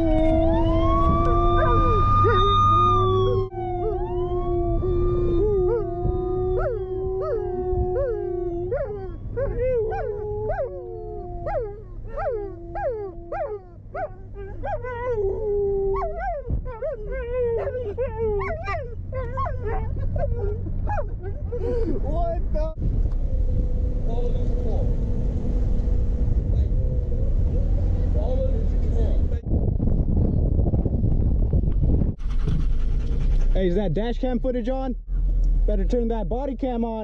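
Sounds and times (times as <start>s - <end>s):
dogs howling: 0.0s - 21.5s
car engine and road hum: 0.0s - 37.0s.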